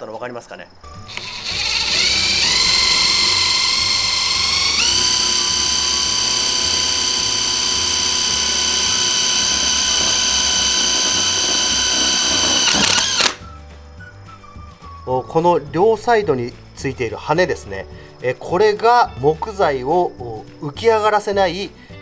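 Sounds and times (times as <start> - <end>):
power driver whining: 1.0 - 13.4.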